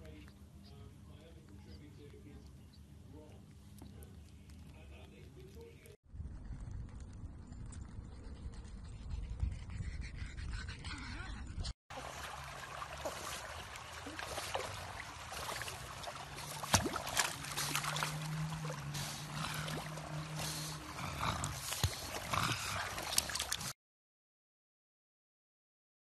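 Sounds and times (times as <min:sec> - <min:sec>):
pool water splashing: 0:11.9 - 0:23.7.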